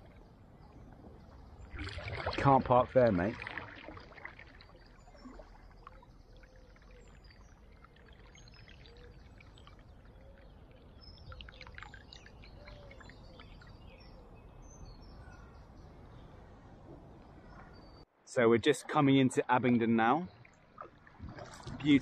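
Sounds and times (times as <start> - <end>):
water dripping off paddle: 1.7 - 13.7
birds chirping faintly: 4.5 - 20.8.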